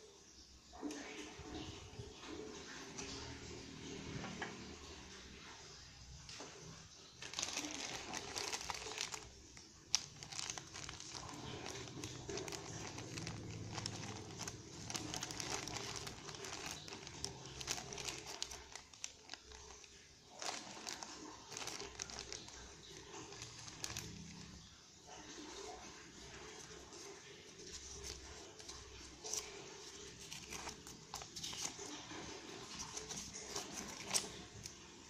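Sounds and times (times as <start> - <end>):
plastic bag crinkling: 7.1 - 35.0.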